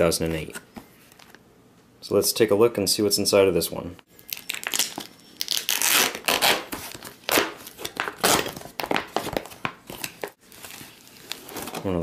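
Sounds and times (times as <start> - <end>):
plastic bag tearing: 4.3 - 11.9.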